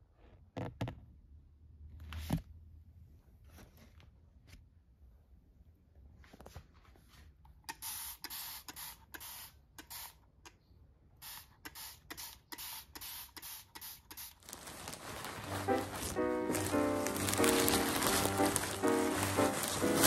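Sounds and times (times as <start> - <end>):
spray bottle hissing squirts: 7.7 - 10.2, 11.2 - 14.4.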